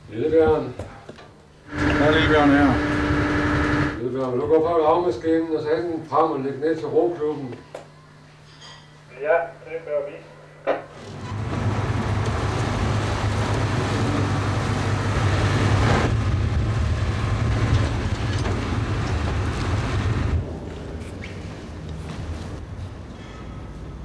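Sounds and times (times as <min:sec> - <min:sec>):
heavy engine running: 0:01.7 - 0:04.0, 0:11.0 - 0:22.6.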